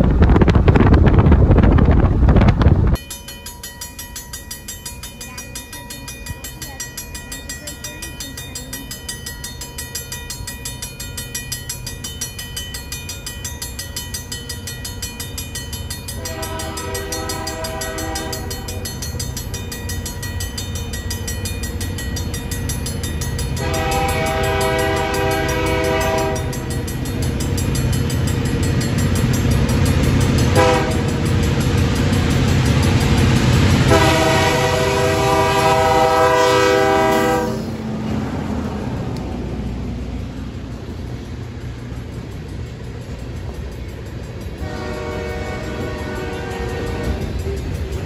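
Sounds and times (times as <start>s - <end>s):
diesel locomotive rumble: 0.0s - 48.0s
crossing bell ringing: 3.0s - 48.0s
train air horn blasts: 16.2s - 18.8s, 23.6s - 26.6s, 30.5s - 31.1s, 33.9s - 37.8s, 44.6s - 47.6s.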